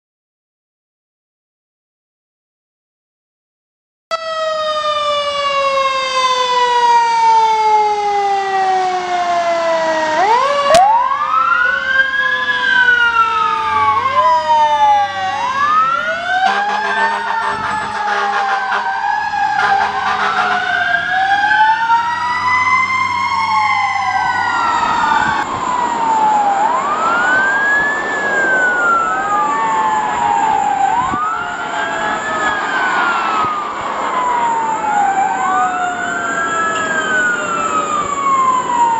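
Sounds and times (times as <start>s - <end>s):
fire engine siren wailing: 4.1s - 38.9s.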